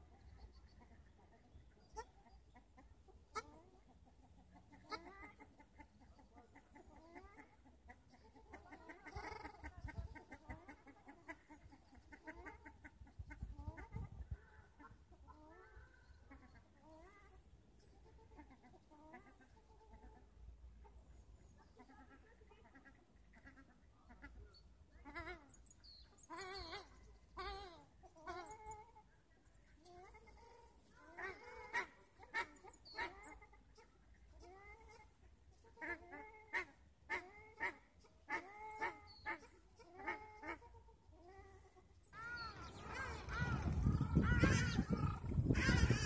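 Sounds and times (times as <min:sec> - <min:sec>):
ducks honking: 0:42.2 - 0:46.0.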